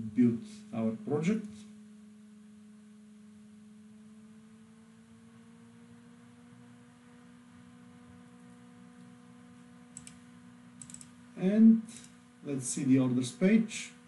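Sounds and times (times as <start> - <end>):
soft hiss: 0.0 - 2.8, 11.2 - 14.0
faint steady hum: 0.0 - 14.0.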